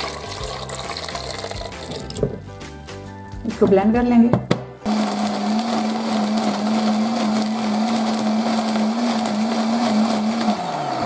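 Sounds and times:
electric blender running: 4.8s - 11.0s.

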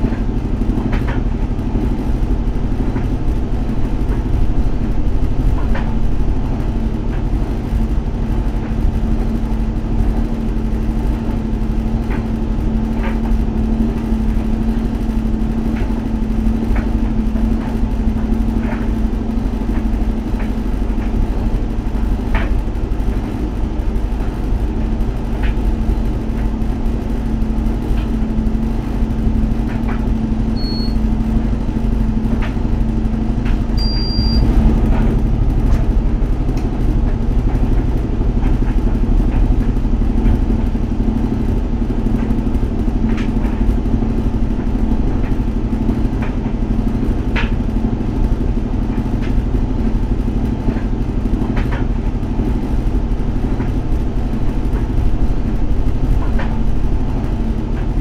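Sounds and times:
tumble dryers rumbling: 0.0s - 58.0s
brief high beeps: 33.8s - 34.4s.

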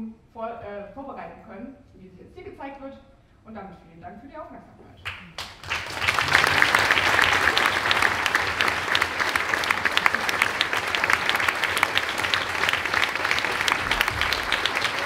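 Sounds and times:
audience clapping: 5.0s - 15.0s.

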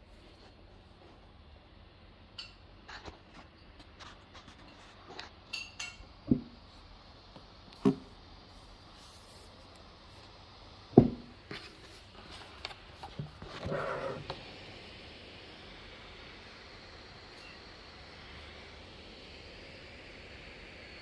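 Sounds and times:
faint steady hiss: 0.0s - 21.0s
dull thumps: 11.0s - 11.3s.

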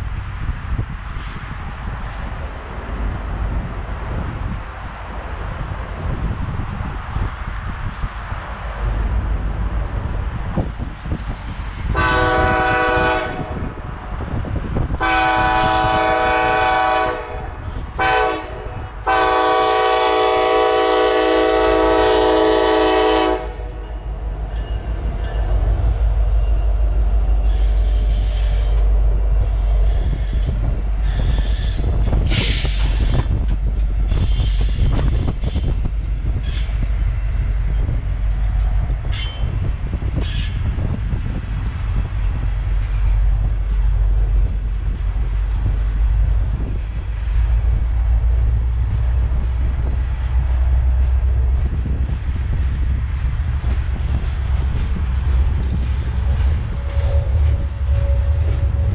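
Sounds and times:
train passing rumble: 0.0s - 58.9s
locomotive air horn: 11.9s - 13.6s, 15.0s - 23.8s, 56.6s - 58.9s.

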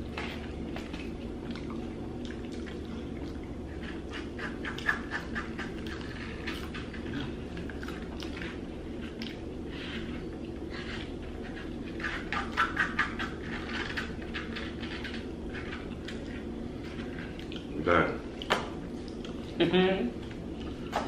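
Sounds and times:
steady low hum: 0.0s - 21.0s
chewing and lip smacking: 0.1s - 11.8s, 15.2s - 19.5s.

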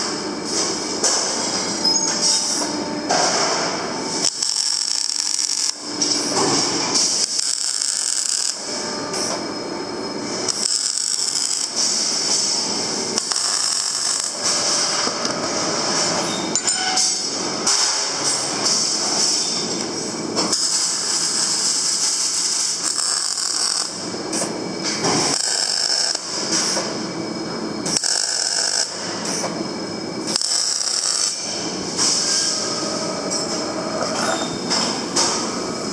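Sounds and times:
welding arc crackling hiss: 3.8s - 9.4s, 10.3s - 15.6s, 20.4s - 24.5s, 25.2s - 26.9s, 27.8s - 29.5s, 30.2s - 32.8s.

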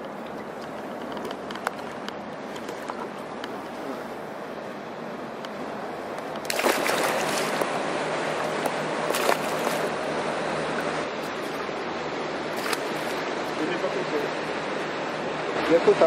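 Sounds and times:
water splashing and sloshing: 0.0s - 15.4s
sharp splashes: 6.4s - 10.1s, 12.5s - 13.3s.

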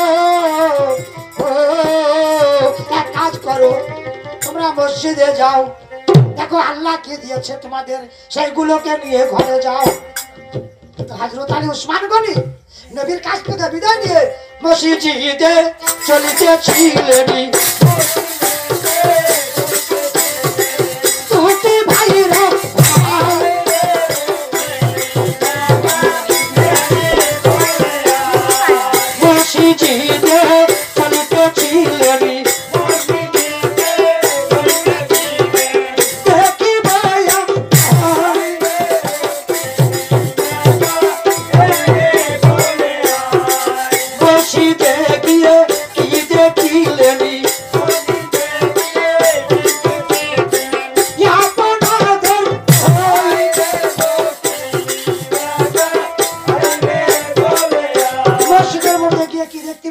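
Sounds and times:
jingling hand cymbals: 0.0s - 5.1s, 15.7s - 59.9s
hand drum beat: 15.9s - 59.4s.

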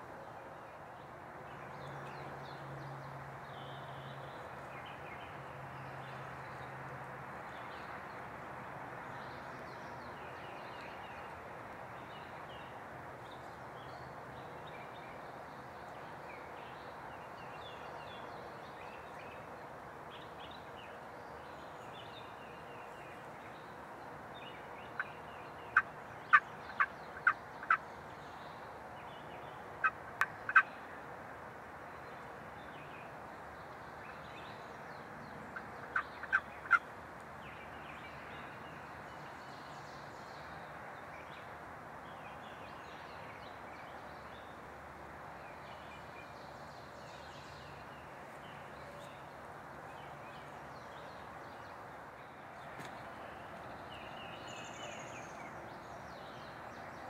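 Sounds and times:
wild turkey calling: 25.7s - 27.8s, 29.8s - 30.7s, 35.8s - 36.8s.

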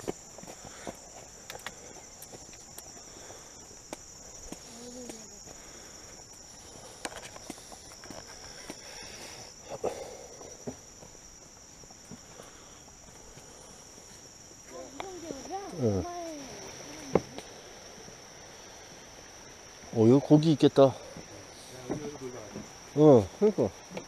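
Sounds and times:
footsteps on dirt trail: 0.0s - 9.5s, 10.4s - 18.2s
high-pitched insect chorus: 0.0s - 24.0s.

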